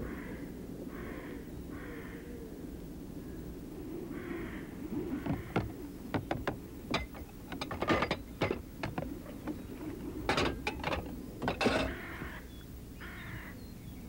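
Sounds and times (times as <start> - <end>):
dishes clinking in a sink: 6.2 - 9.6, 10.2 - 12.1.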